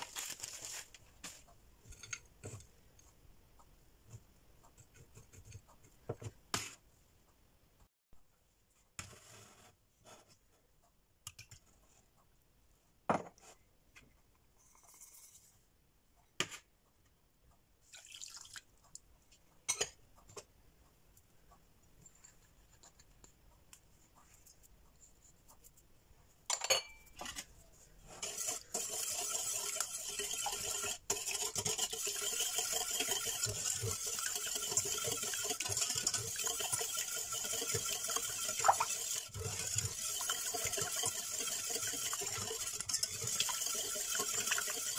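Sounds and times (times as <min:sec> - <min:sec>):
wire whisk beating in a saucepan: 0:28.1 - 0:44.9.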